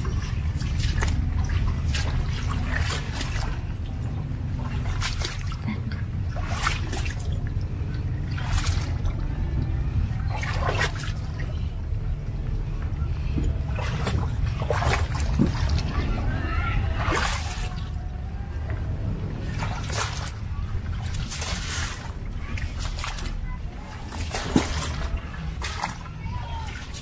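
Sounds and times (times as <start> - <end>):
floodwater trickling and splashing: 0.0 - 27.0
low rumble: 0.0 - 27.0.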